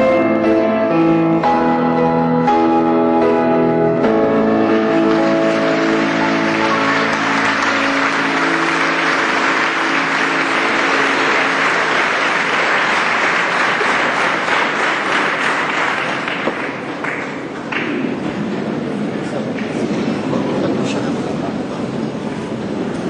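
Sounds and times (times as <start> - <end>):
song's held final notes: 0.0 - 13.7
audience applauding: 4.9 - 18.3.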